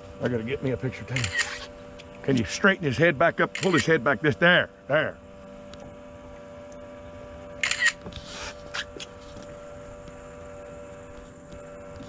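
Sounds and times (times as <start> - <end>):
boat motor hum: 0.0 - 12.0
camera shutter clicks: 1.2 - 1.7, 3.6 - 3.9, 7.6 - 8.0.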